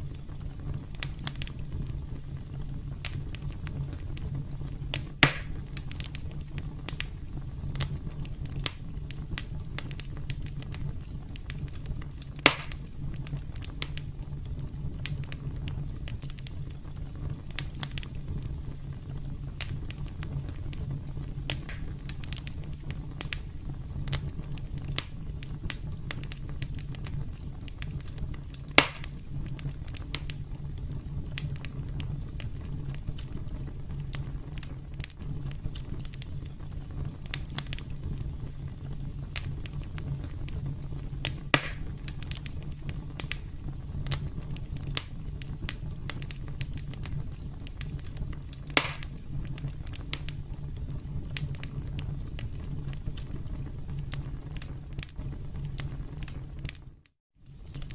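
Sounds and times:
low steady rumble: 0:00.0 - 0:54.6
loud fire pops: 0:00.0 - 0:57.9
wood fire crackling: 0:00.0 - 0:57.9.

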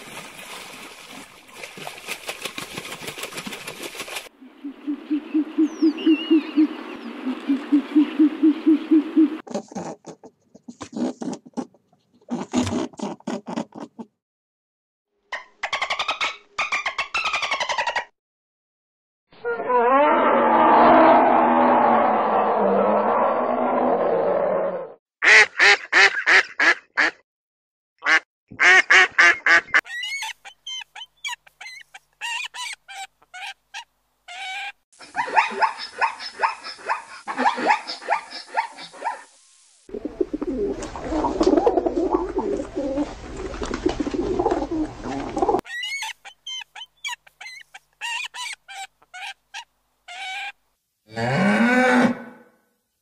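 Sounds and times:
low growl: 0:19.7 - 0:25.0.

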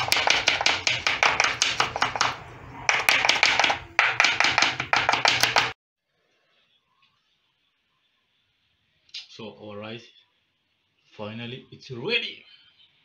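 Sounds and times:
knife chopping on wooden board: 0:00.0 - 0:05.8.

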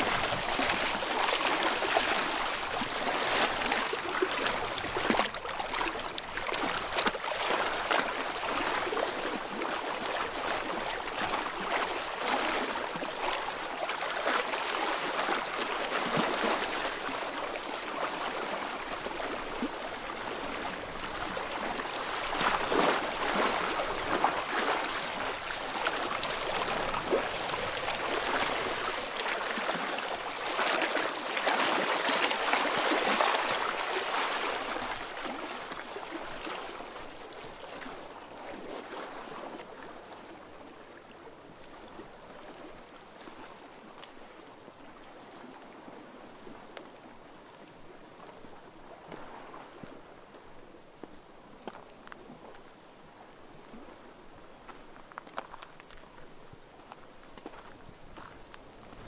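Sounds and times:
sea water lapping at shore: 0:00.0 - 0:59.0.

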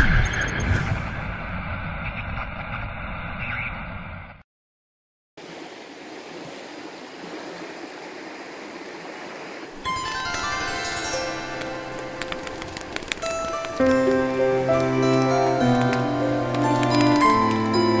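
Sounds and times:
river water flowing over stones: 0:05.4 - 0:18.0.

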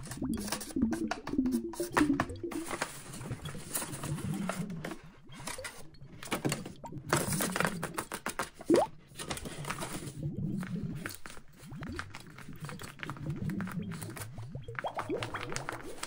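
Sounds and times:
paper rustling and crinkling: 0:01.8 - 0:16.0
paper taps and scrapes: 0:07.2 - 0:14.4.

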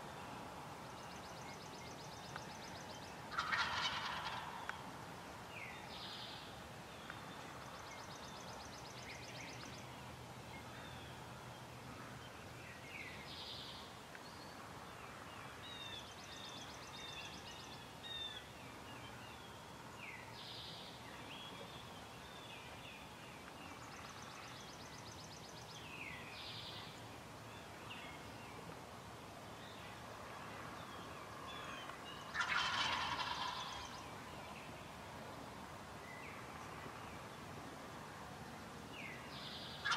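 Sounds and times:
turkey gobbling: 0:03.3 - 0:04.6, 0:32.3 - 0:33.9.

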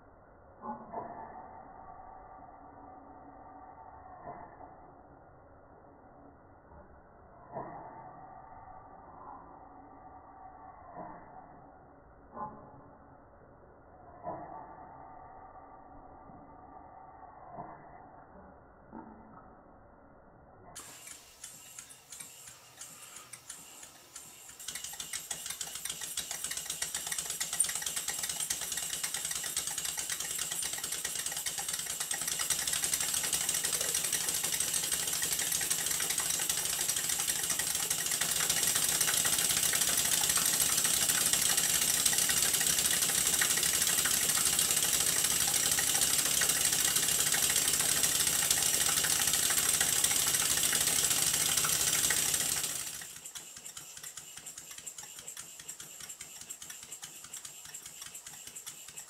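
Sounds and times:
steam engine exhaust puffs: 0:20.8 - 0:59.0.

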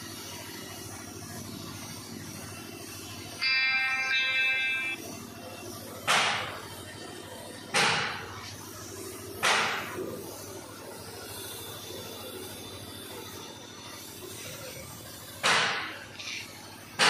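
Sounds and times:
paint spray gun hissing: 0:08.0 - 0:17.0.

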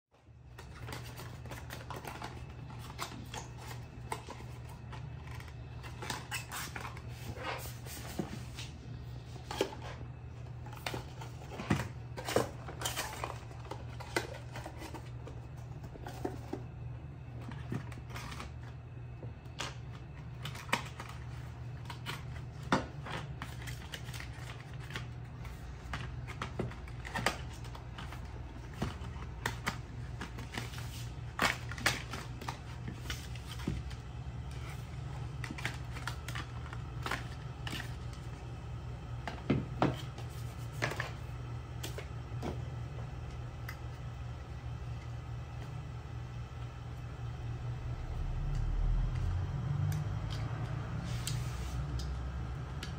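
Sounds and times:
steady low hum: 0:00.1 - 0:52.9.

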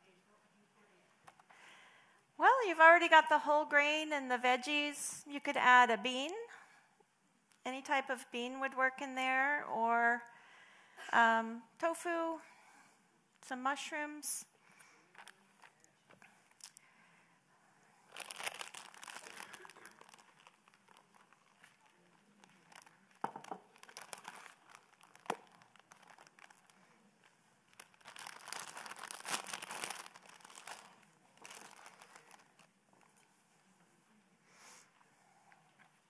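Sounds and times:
packaging crinkling: 0:18.1 - 0:33.2.

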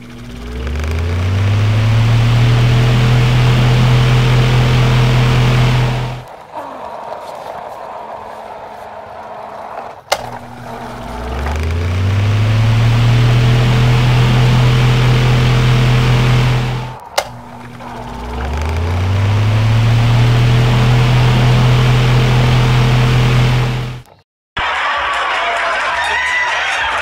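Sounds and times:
truck engine revving: 0:00.0 - 0:24.2
sharp click: 0:10.1 - 0:13.5, 0:17.1 - 0:20.5.

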